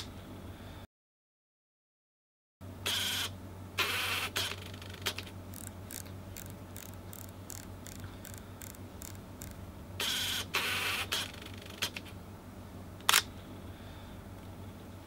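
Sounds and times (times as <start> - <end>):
camera shutter clatter: 4.0 - 12.0
control wheel clicking: 5.5 - 9.6.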